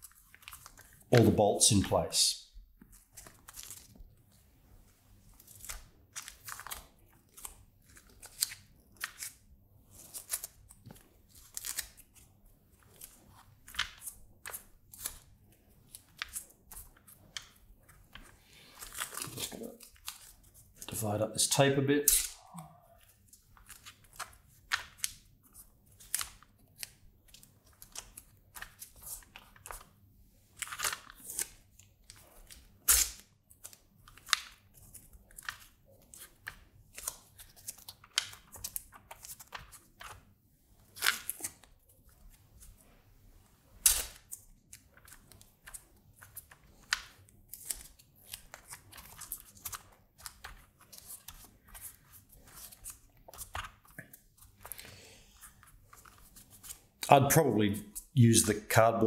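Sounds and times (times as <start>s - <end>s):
masking tape tearing: 32.9s - 33.2s, 43.8s - 44.4s.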